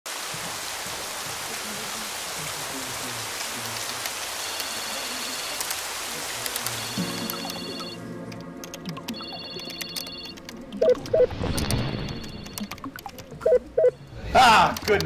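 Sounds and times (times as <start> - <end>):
steady rain hiss: 0.1 - 8.0
raindrop clicks: 3.2 - 13.8, 14.6 - 15.0.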